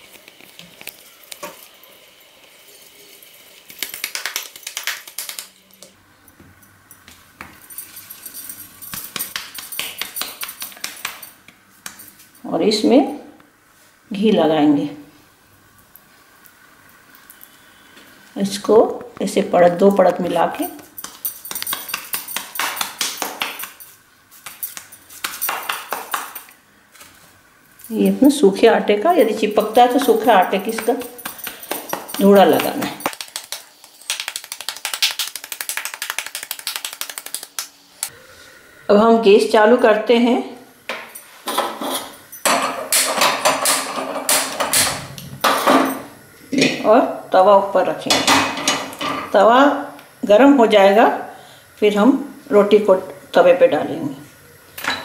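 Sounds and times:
hands patting dough: 0:03.8 - 0:05.5, 0:08.9 - 0:12.1, 0:21.0 - 0:26.4, 0:29.3 - 0:37.7
light clinks: 0:05.8 - 0:11.4, 0:29.2 - 0:33.1
metallic jingle of bangles: 0:06.6 - 0:11.4, 0:20.6 - 0:26.5, 0:29.0 - 0:33.2.

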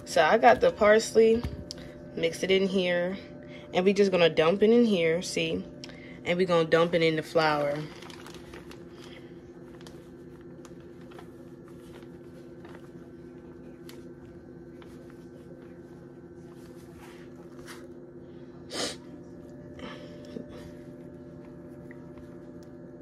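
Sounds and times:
steady low hum: 0:00.0 - 0:23.0
plastic bag crinkling: 0:07.2 - 0:14.1.

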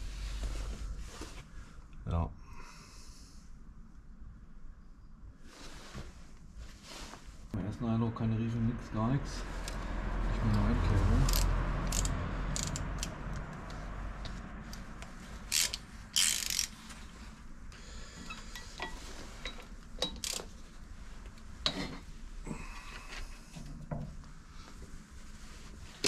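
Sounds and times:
ratchet wrench clicking: 0:11.2 - 0:13.4, 0:15.4 - 0:16.8, 0:20.0 - 0:20.5.

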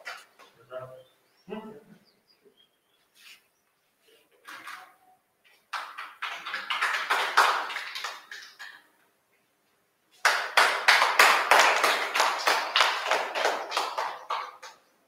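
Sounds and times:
people clapping: 0:05.5 - 0:08.9, 0:10.1 - 0:15.0.

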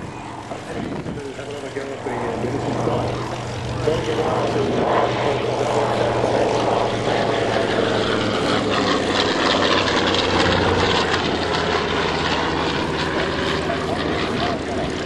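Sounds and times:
propeller aircraft passing overhead: 0:00.0 - 0:15.0.

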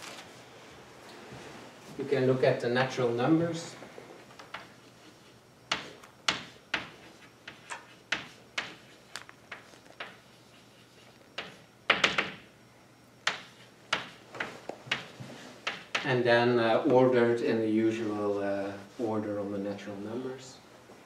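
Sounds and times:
chalk tapping on a blackboard: 0:05.7 - 0:12.4, 0:13.2 - 0:16.1.

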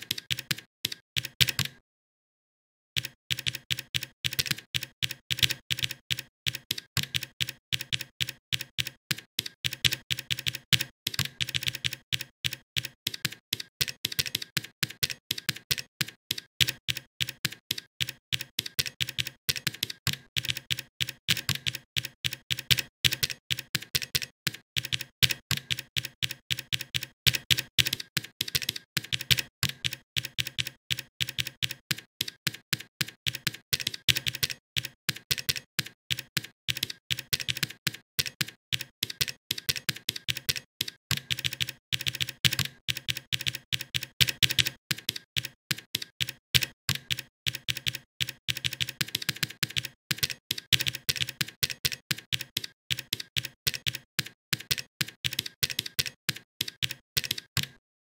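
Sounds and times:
keyboard typing clicks: 0:00.0 - 0:01.8, 0:03.0 - 0:57.8.

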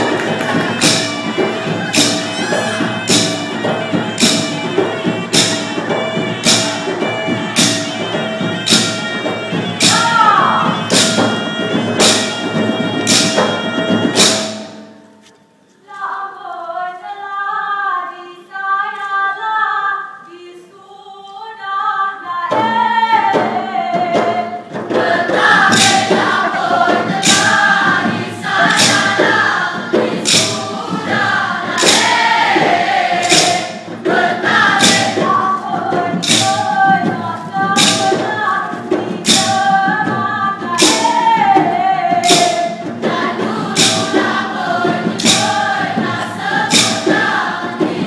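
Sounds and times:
sharp percussion strikes: 0:00.0 - 0:15.4, 0:22.6 - 0:48.0
group of voices singing: 0:22.3 - 0:48.0.

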